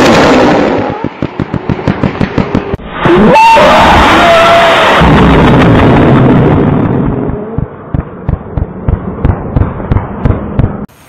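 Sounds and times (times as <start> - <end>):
sharp firework pops: 0.0 - 2.8.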